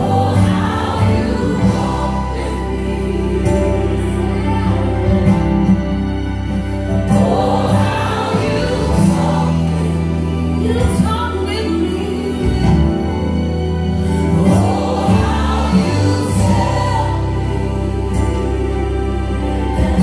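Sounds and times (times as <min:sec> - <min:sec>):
choir singing gospel song: 0:00.0 - 0:20.0.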